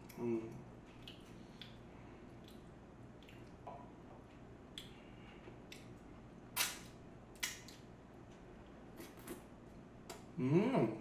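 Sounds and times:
mouth smacking sounds: 0:00.0 - 0:01.8, 0:08.9 - 0:10.7
person chewing food: 0:00.0 - 0:09.5
steady low hum: 0:00.0 - 0:11.0.

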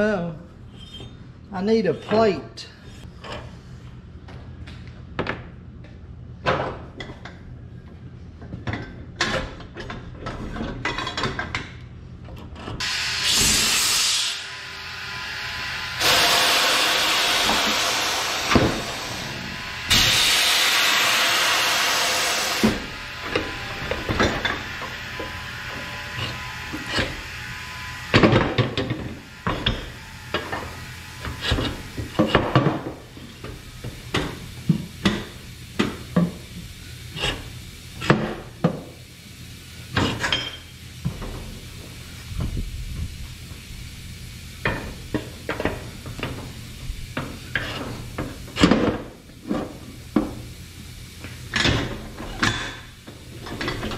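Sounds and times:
loud air hiss: 0:12.8 - 0:28.2
tire knocking and clunking on machine: 0:28.1 - 0:36.5.

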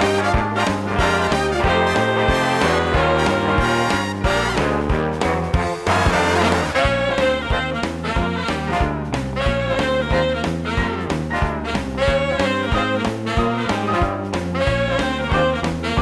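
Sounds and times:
swing music with brass: 0:00.0 - 0:16.0.

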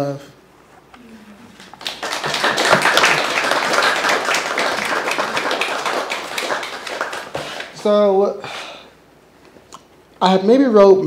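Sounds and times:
audience applauding: 0:01.0 - 0:07.9.

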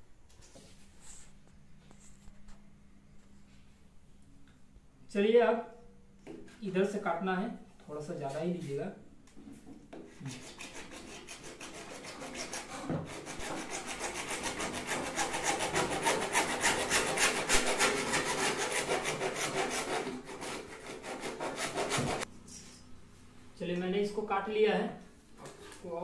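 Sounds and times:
hacksaw sawing plastic pipe: 0:10.2 - 0:22.2.

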